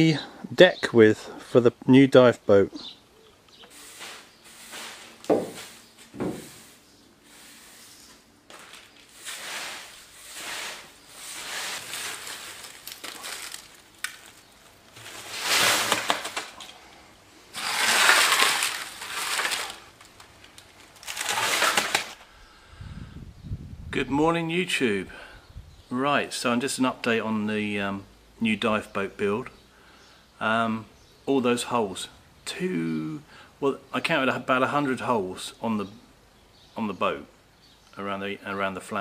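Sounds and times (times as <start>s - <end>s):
broom sweeping concrete floor: 3.6s - 16.4s, 17.5s - 19.9s
metal shavings clinking: 8.5s - 16.8s, 17.6s - 22.1s.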